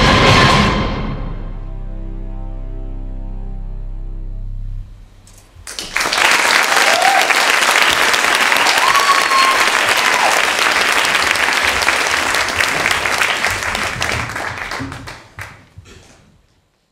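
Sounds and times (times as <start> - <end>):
audience applauding: 5.6 - 15.8
audience cheering: 5.7 - 15.5.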